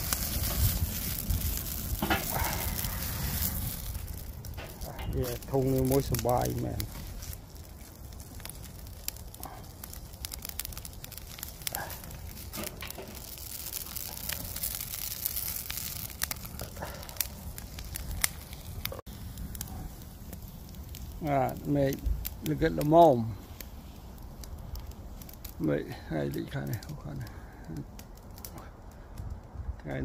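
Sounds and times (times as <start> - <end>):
wood fire crackling and popping: 0.0 - 30.0.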